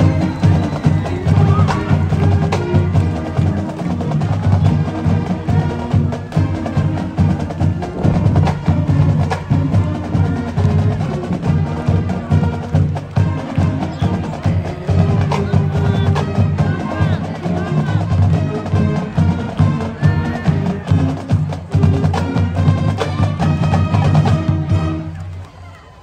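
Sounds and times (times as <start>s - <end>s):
loud music with heavy percussion: 5.4s - 12.0s.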